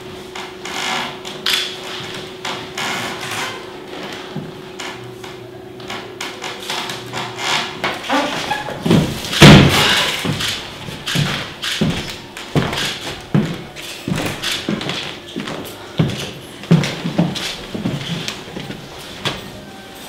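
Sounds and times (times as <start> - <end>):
heavy thud: 8.8 - 12.8
dull knocks like footsteps: 8.8 - 18.8.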